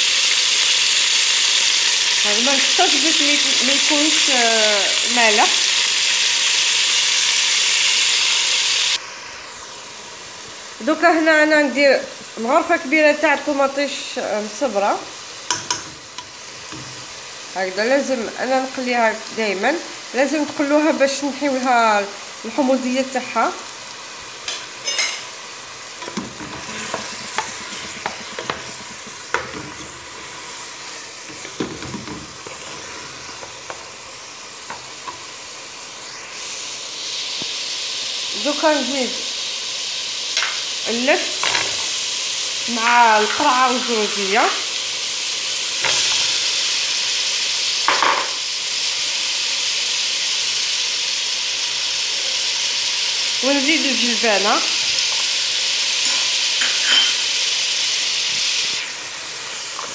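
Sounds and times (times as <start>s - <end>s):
food sizzling in a pot: 0.0s - 59.9s
wooden spoon knocking pot: 26.0s - 29.8s.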